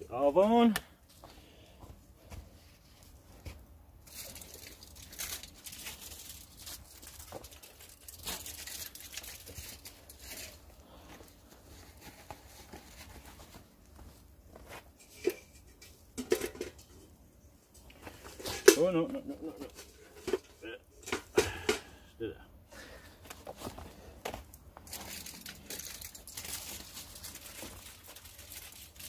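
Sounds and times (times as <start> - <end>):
material rustling and crinkling: 1.9 - 15.7, 23.2 - 29.0.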